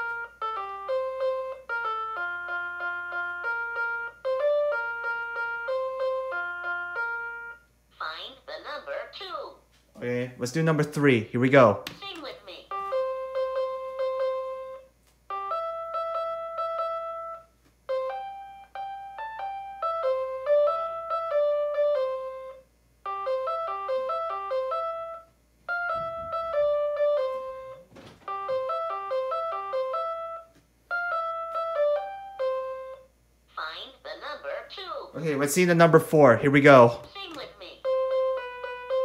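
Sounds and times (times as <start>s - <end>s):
toy playing electronic tune: 0.0s - 7.7s, 12.7s - 33.1s, 37.6s - 39.0s.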